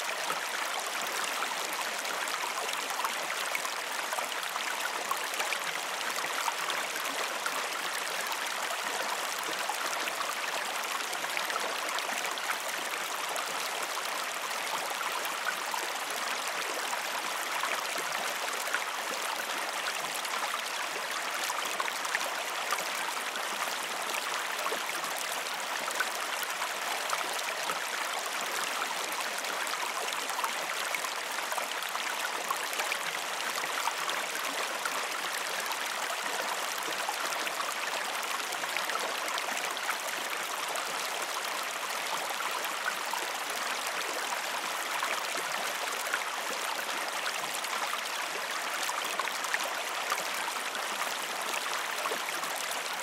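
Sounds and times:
creek water flowing: 0.0 - 53.0.

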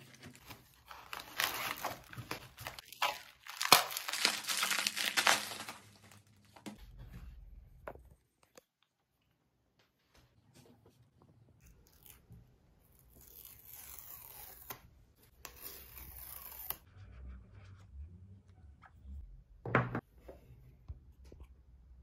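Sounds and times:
paper strips ripping: 0.0 - 6.2, 13.0 - 14.8
cardboard handling: 0.0 - 6.6.

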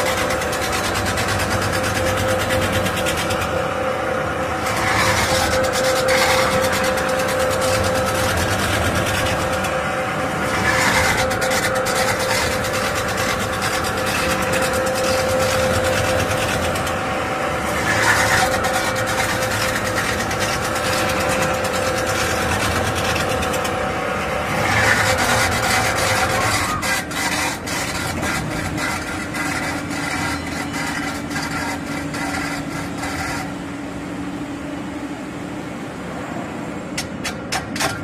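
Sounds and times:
machine mechanical hum: 0.0 - 38.0.

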